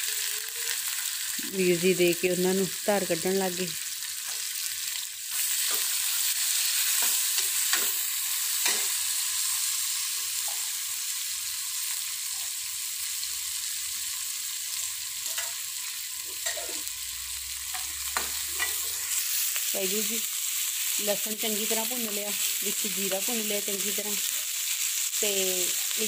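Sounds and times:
onions sizzling in a pan: 0.0s - 26.0s
steel utensils clinking on pan: 16.4s - 16.8s, 17.7s - 19.0s.

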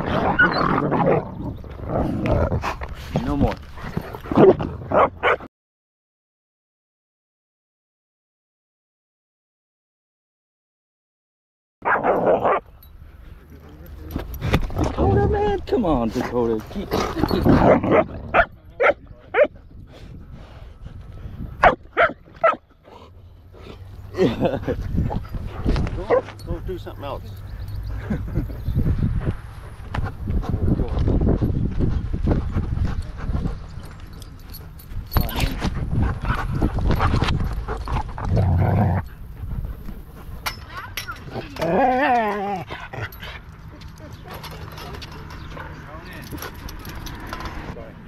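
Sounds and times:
dog barking: 5.0s - 5.5s, 17.7s - 19.5s, 21.6s - 22.6s, 26.1s - 26.3s
dog panting: 26.8s - 40.4s.

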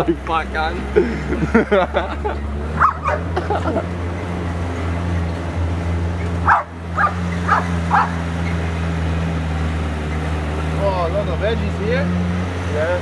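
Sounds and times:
car engine droning: 0.0s - 13.0s
dog barking: 2.8s - 3.4s, 6.4s - 8.2s.

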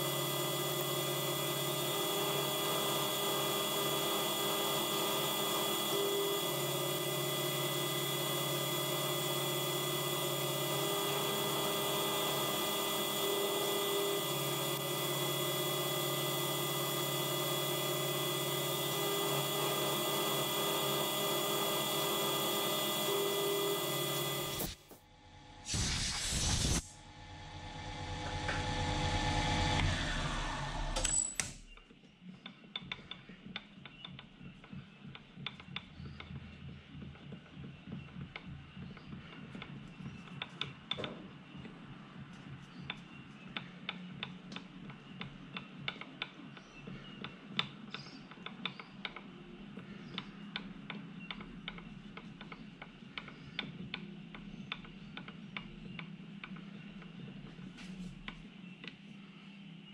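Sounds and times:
milling spindle cutting metal: 0.0s - 24.9s.

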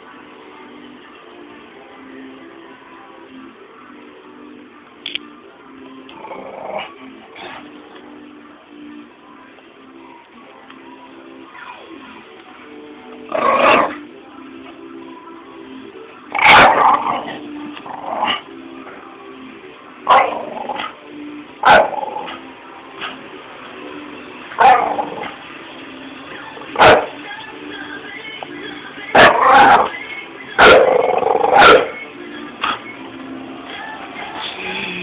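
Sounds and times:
background music: 0.0s - 35.0s
dog barking: 16.4s - 16.9s, 21.6s - 22.0s, 24.6s - 25.0s, 26.8s - 27.2s, 29.2s - 29.9s, 30.6s - 32.0s.

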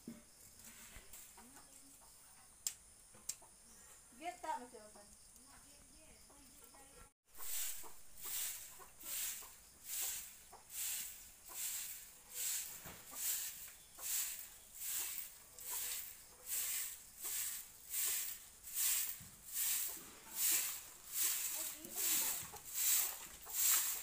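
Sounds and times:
broom sweeping earth: 0.5s - 1.5s, 7.3s - 24.0s.

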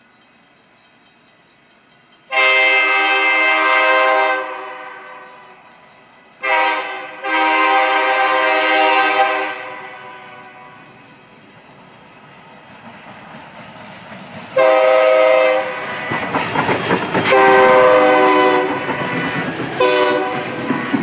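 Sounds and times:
train rumbling: 0.0s - 21.0s
locomotive air horn: 2.3s - 5.2s, 6.4s - 10.8s, 14.6s - 16.3s, 17.2s - 20.6s.

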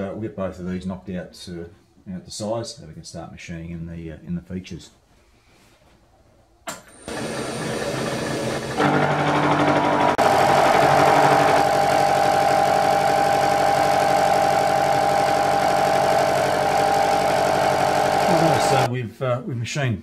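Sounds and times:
milling machine cutting metal: 7.0s - 18.9s.

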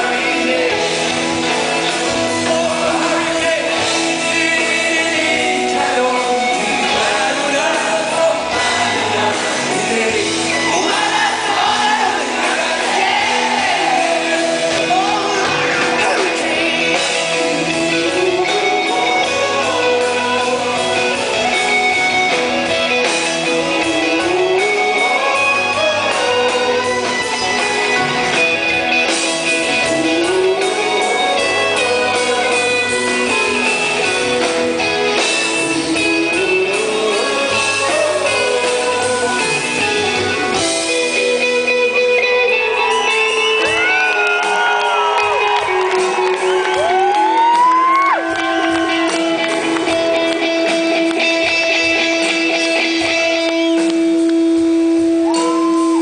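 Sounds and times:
male lead vocal: 0.0s - 42.0s
electric guitars: 0.0s - 56.0s.

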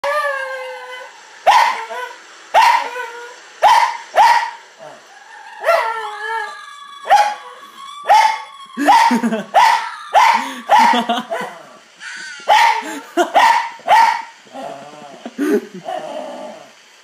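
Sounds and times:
dog barking: 1.5s - 1.8s, 2.6s - 2.9s, 3.6s - 4.6s, 8.1s - 11.6s, 12.5s - 14.3s.

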